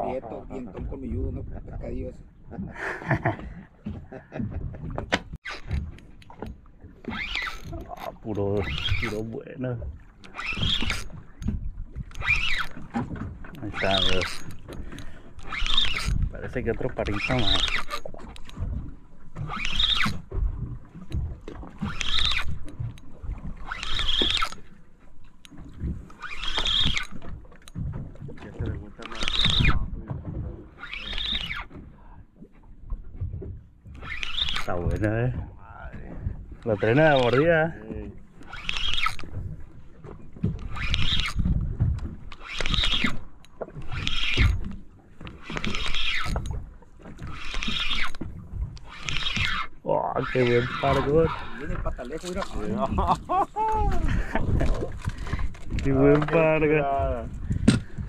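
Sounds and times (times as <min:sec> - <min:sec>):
water slapping against boat hull: 0:00.0 - 0:58.0
fishing reel gears whirring: 0:05.4 - 0:09.5, 0:10.1 - 0:28.0, 0:29.0 - 0:29.8, 0:30.7 - 0:32.1, 0:33.8 - 0:58.0
wind rumble on microphone: 0:39.2 - 0:42.3, 0:50.8 - 0:58.0.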